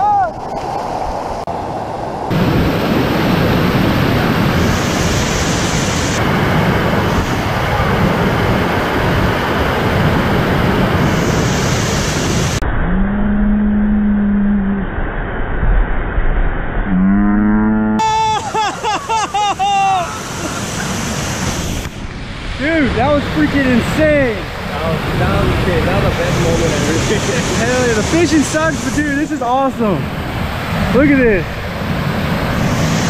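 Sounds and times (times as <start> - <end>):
whitewater rushing: 2.3 - 12.6, 18.0 - 33.0
long low held call: 18.0 - 20.9.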